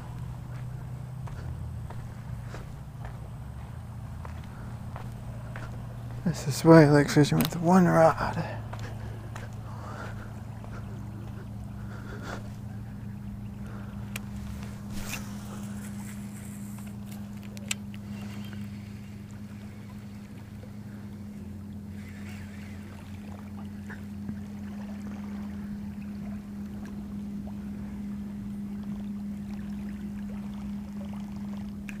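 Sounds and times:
boat motor humming: 0.0s - 32.0s
light clicks: 16.8s - 18.7s.

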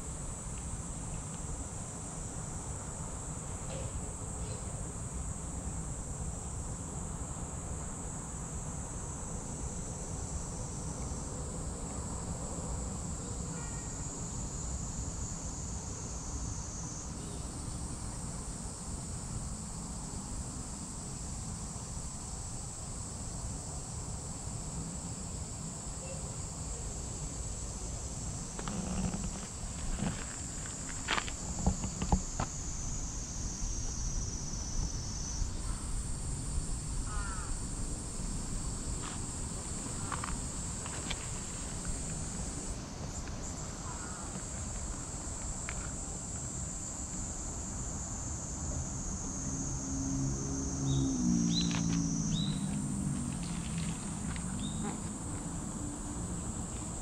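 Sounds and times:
insects droning: 0.0s - 57.0s
brief knocks and rustles: 28.6s - 32.5s.

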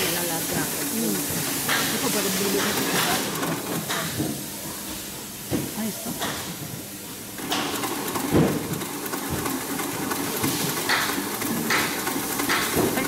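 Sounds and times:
sewing machine rattling: 0.0s - 4.3s, 7.4s - 13.0s.

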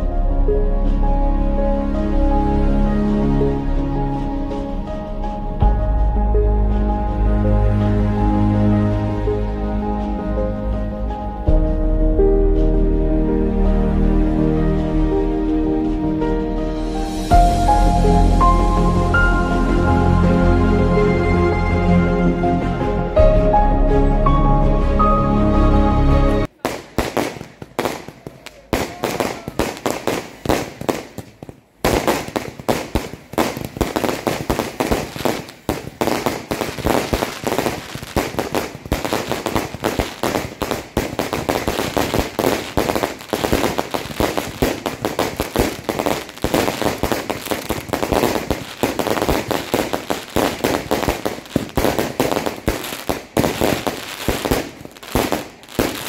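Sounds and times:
fireworks bangs and crackles: 26.5s - 56.0s.

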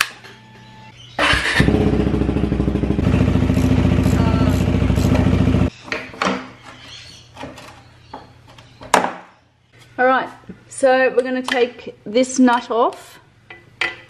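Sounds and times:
motorcycle engine idling: 1.3s - 5.7s.

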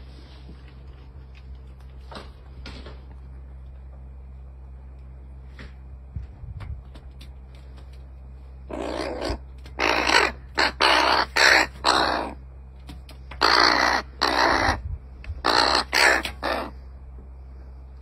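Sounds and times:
crow cawing: 8.7s - 12.4s, 13.4s - 14.8s, 15.4s - 16.8s.

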